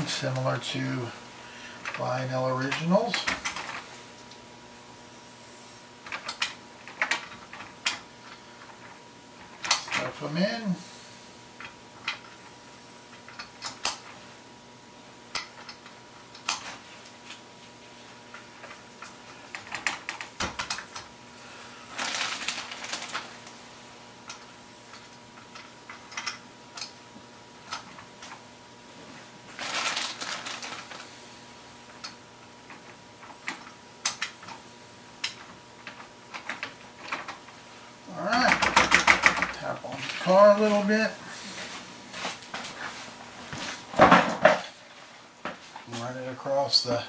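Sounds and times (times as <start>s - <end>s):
handling noise: 21.9s - 23.7s, 29.0s - 31.2s.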